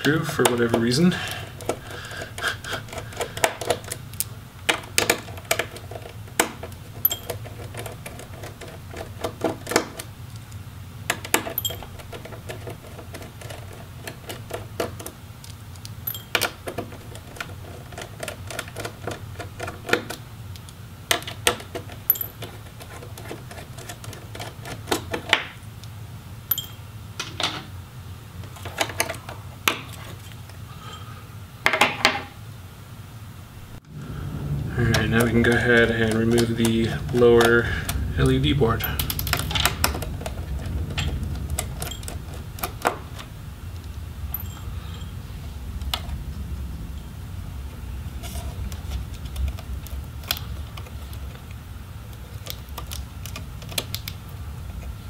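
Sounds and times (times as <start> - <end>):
steady low hum: 0.0 - 55.0.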